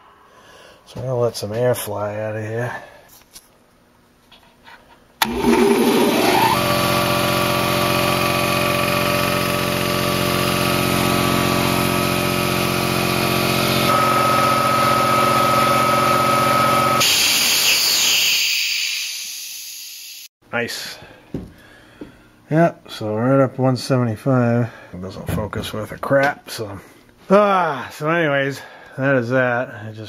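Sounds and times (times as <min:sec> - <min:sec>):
air compressor motor whining: 0:05.2 - 0:19.3
air hissing: 0:17.0 - 0:20.3.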